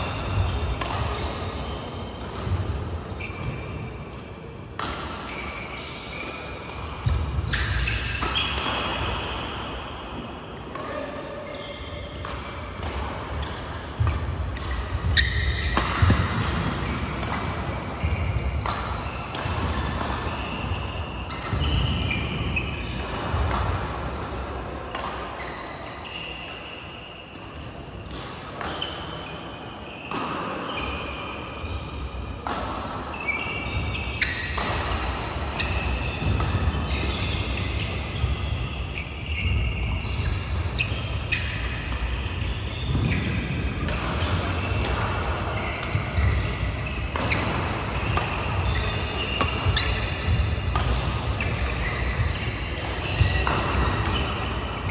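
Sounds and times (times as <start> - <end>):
shoes squeaking on court: 0.0 - 4.1, 4.8 - 9.2, 10.7 - 23.6, 25.4 - 26.5, 28.0 - 31.8, 33.1 - 54.9
rackets striking shuttlecocks: 0.3 - 1.4, 4.7 - 5.3, 6.5 - 9.1, 12.0 - 24.1, 32.4 - 38.4, 42.9 - 54.9.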